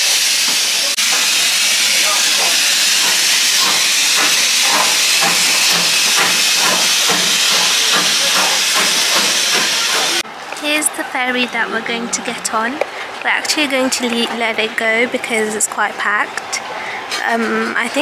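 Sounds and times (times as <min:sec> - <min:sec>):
steam locomotive hissing: 0:00.0 - 0:10.2.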